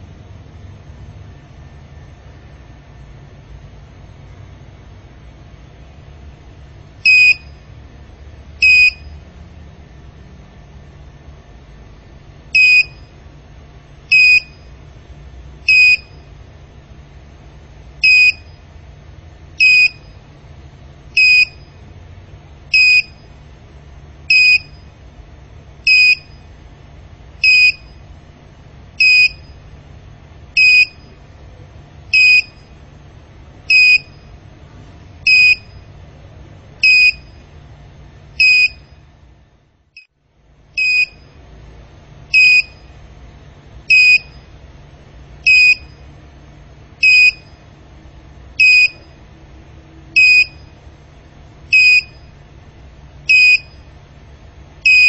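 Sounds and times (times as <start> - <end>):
piezo buzzer beeping: 7.0 - 7.6, 8.6 - 9.2, 12.6 - 13.2, 14.1 - 14.7, 15.7 - 16.4, 18.0 - 18.7, 19.6 - 20.2, 21.2 - 21.8, 22.7 - 23.4, 24.3 - 24.9, 25.9 - 26.5, 27.4 - 28.0, 29.0 - 29.6, 30.6 - 31.2, 32.1 - 32.8, 33.7 - 34.3, 35.2 - 35.9, 36.8 - 37.4, 38.4 - 39.0, 40.8 - 41.4, 42.3 - 43.0, 43.9 - 44.5, 45.4 - 46.0, 47.0 - 47.6, 48.6 - 49.2, 50.2 - 50.8, 51.7 - 52.4, 53.3 - 53.9.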